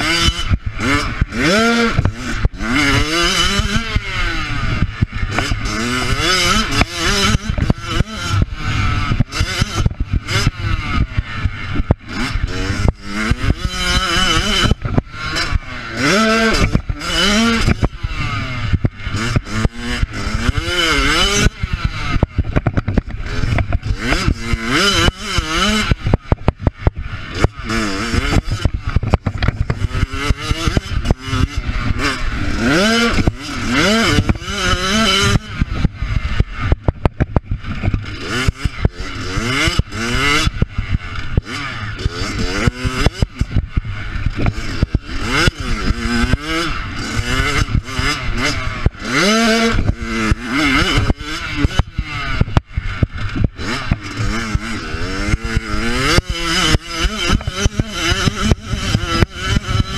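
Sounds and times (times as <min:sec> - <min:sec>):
bike rattling over rough ground: 0:00.0 - 0:59.9
motocross bike engine: 0:00.0 - 0:59.9.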